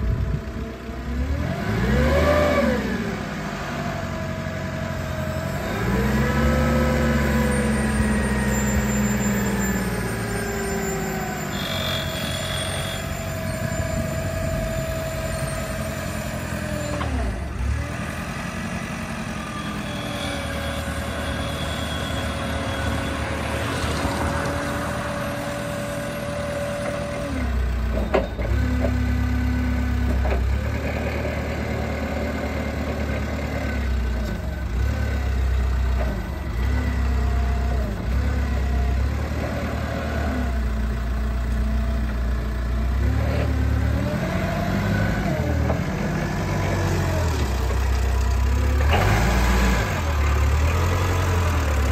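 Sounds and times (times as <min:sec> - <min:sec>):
steady engine whine: 0:00.0 - 0:30.4
forklift engine revving: 0:00.1 - 0:51.9.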